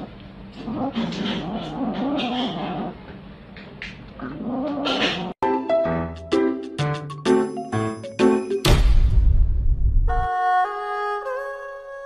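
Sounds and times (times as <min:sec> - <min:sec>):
cat growling while eating: 0:00.0 - 0:03.0, 0:04.2 - 0:05.4
chiming music jingle: 0:07.0 - 0:08.7.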